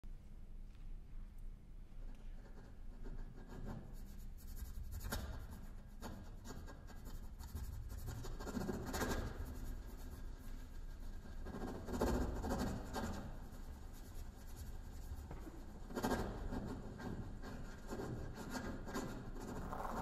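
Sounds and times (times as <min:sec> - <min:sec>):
scratching on kalimba body: 0:19.5 - 0:20.0.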